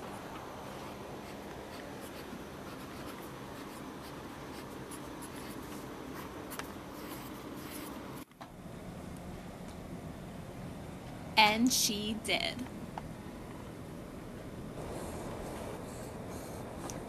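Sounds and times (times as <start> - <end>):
low room hum: 0.0 - 17.0
pencil scratching on paper: 1.2 - 8.0, 14.8 - 16.9.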